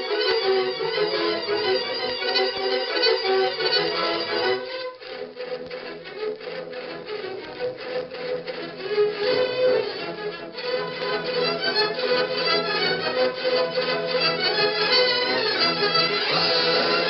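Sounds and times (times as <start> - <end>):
orchestral music led by strings: 0.0 - 17.0.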